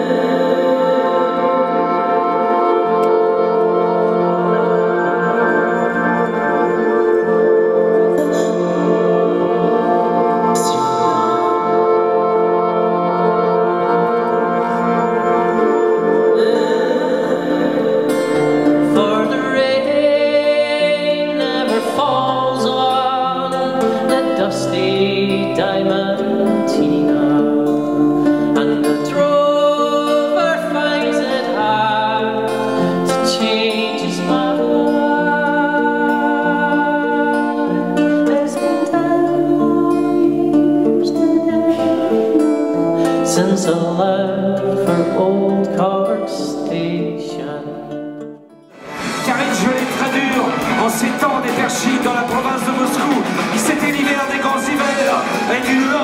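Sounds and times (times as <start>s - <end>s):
held instrumental notes: 0.0s - 31.7s, 47.9s - 56.0s
man singing: 0.0s - 48.0s, 49.1s - 56.0s
acoustic guitar: 0.0s - 56.0s.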